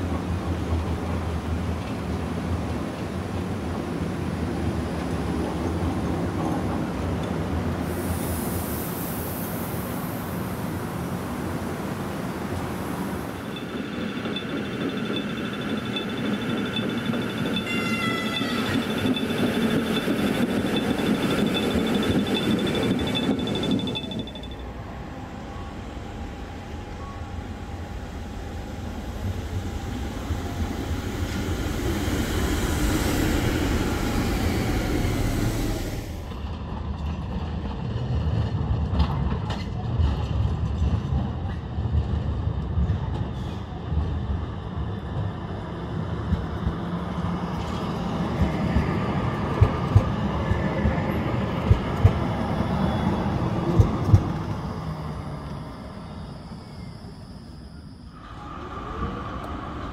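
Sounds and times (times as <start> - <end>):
tram running on rails: 0.0 - 59.9
tram wheels clacking on track: 13.4 - 24.8, 28.9 - 55.6.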